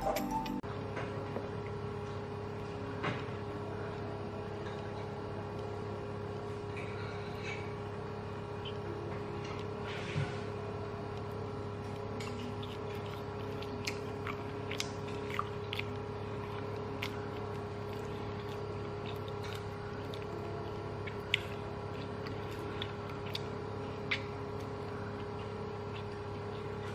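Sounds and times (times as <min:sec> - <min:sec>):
steady electrical hum: 0:00.0 - 0:26.9
chewing mouth clicks: 0:11.1 - 0:26.9.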